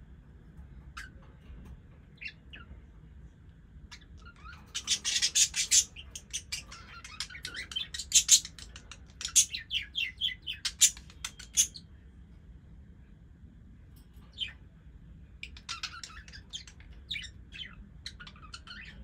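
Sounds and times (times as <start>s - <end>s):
budgies chirping and chattering: 0.9s - 1.5s, 2.2s - 2.8s, 3.9s - 11.9s, 15.4s - 19.0s.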